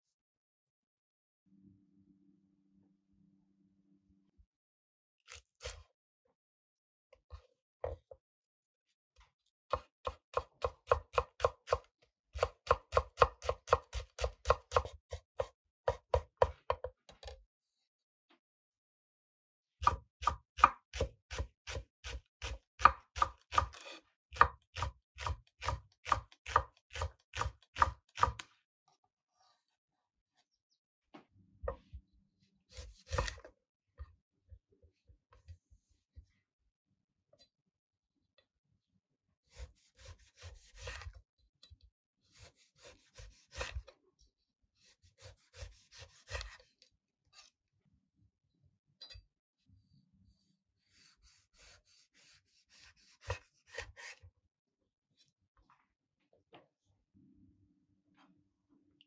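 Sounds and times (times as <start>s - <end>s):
knife chopping on wooden board: 9.7s - 17.3s, 19.8s - 28.4s, 32.7s - 33.5s, 39.5s - 41.2s, 42.3s - 43.9s, 44.8s - 46.7s, 50.9s - 54.2s
knife slicing citrus on board: 32.7s - 33.4s, 39.5s - 41.2s, 42.3s - 43.9s, 44.8s - 46.7s, 50.9s - 54.3s.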